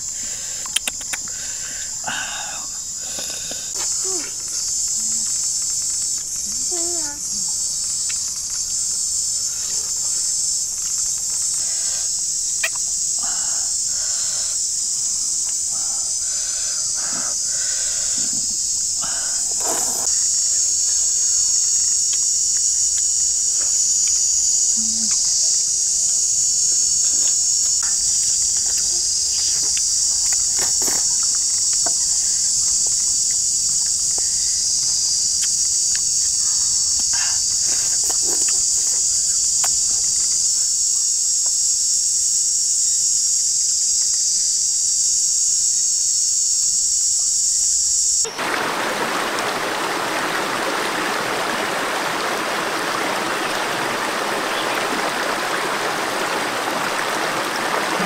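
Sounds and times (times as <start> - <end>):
high-pitched insect chorus: 0.0 - 58.0
people eating smacks: 0.5 - 7.2, 9.6 - 14.6, 15.4 - 20.2, 27.0 - 32.9, 34.1 - 40.4.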